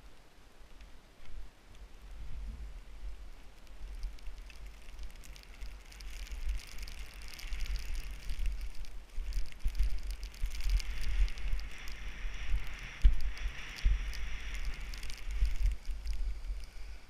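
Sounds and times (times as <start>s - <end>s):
wind rumble on microphone: 0.0s - 17.0s
skis hissing through snow: 5.0s - 17.0s.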